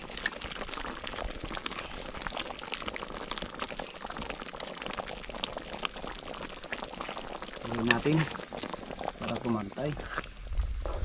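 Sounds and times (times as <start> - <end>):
sauce bubbling in a pan: 0.0 - 11.0.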